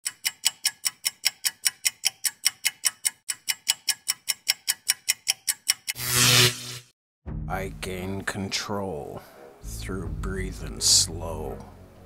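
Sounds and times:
timer ticking: 0:00.0 - 0:06.0.

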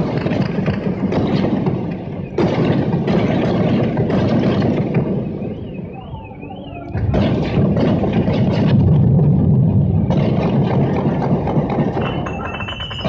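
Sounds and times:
loud rough street noise: 0:00.0 - 0:13.0
high wavering tone: 0:05.5 - 0:07.2.

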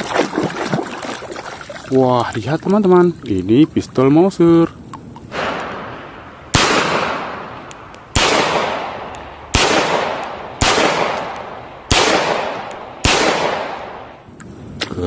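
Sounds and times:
pistol shots echoing: 0:05.3 - 0:14.2.

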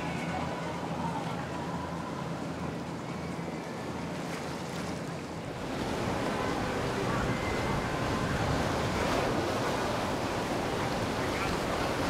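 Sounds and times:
water rushing and splashing: 0:00.0 - 0:12.0
wind buffeting microphone: 0:05.6 - 0:12.0.

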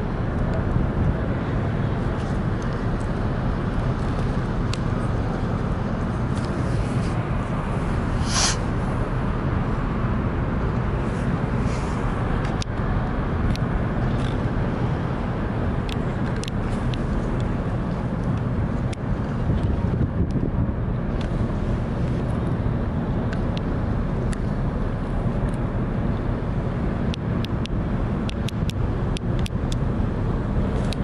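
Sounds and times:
low waterfront rumble: 0:00.0 - 0:31.0.

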